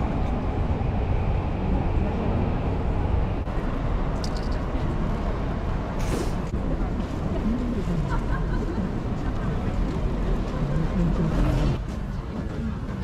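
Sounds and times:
murmur of many people talking: 6.0s - 13.0s.

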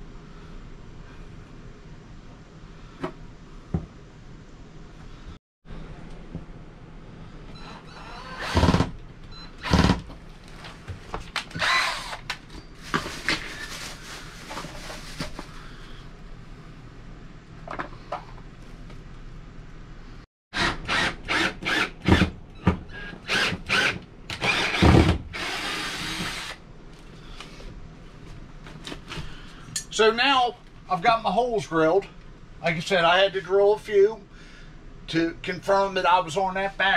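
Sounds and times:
cordless drill drilling: 7.9s - 8.9s, 9.6s - 10.0s, 11.5s - 12.2s, 20.6s - 22.3s, 23.0s - 26.6s.

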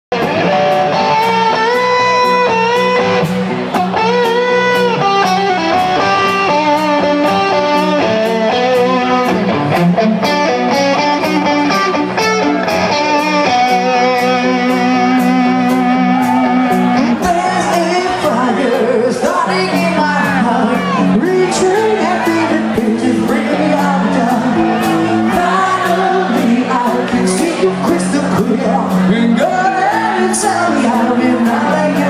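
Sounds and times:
electric guitar bent notes: 0.1s - 18.6s.

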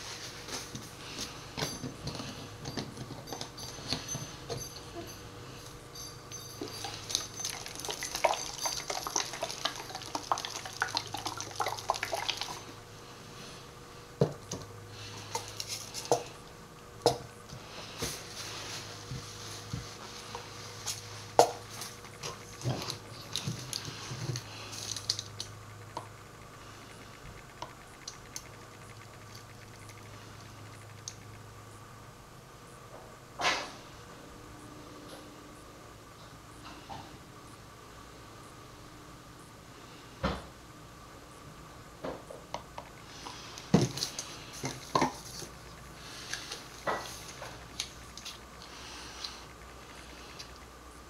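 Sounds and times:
faint steady hum: 0.0s - 51.0s
bottles clicking and clinking: 1.6s - 5.2s, 6.0s - 12.6s.

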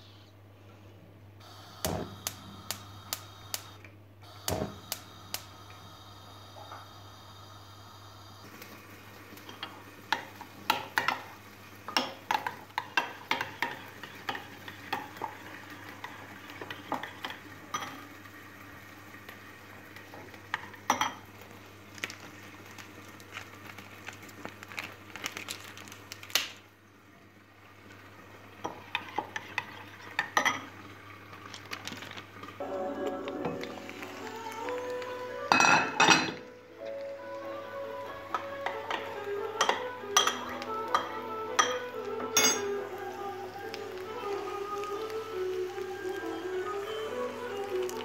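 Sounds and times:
spoon clinking in ceramic cup: 39.6s - 41.8s, 42.4s - 42.8s.

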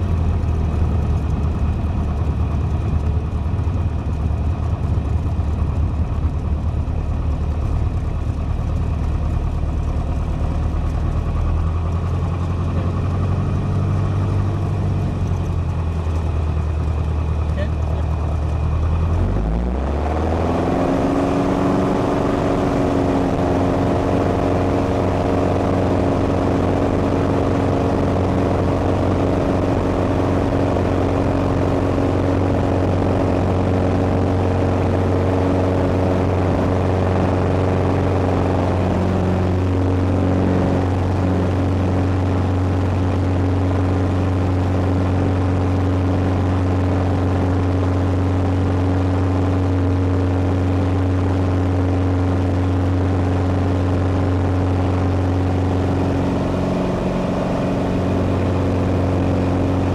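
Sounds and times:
propeller aircraft engine drone: 0.0s - 59.9s.

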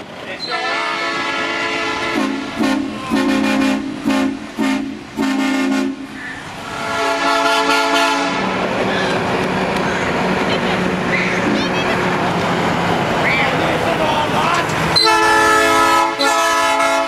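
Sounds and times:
truck air horn blasts: 0.5s - 8.6s, 15.0s - 17.0s.

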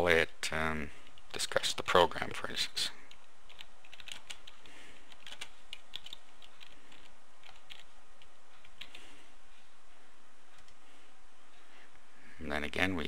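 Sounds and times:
computer keyboard typing: 3.1s - 9.0s.

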